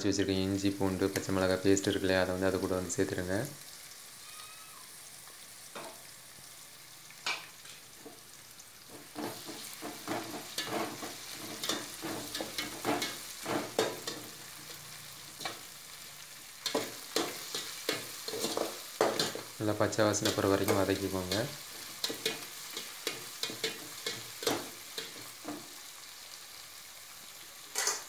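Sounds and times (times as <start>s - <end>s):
onions sizzling in hot oil: 0.0s - 28.0s
metal spatula scraping pot: 8.9s - 14.8s, 16.6s - 19.5s, 27.7s - 28.0s.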